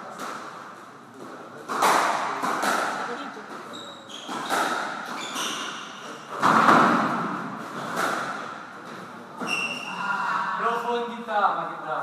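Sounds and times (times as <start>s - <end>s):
squash ball hits: 1.7s - 3.2s, 4.2s - 8.7s
shoes squeaking on wooden floor: 3.5s - 6.0s, 9.4s - 10.0s.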